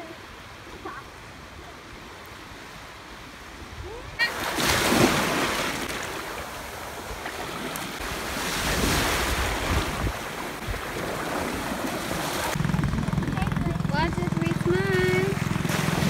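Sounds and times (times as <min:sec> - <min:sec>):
small waves breaking: 0:00.0 - 0:12.6, 0:14.6 - 0:16.0
wind on microphone: 0:08.0 - 0:16.0.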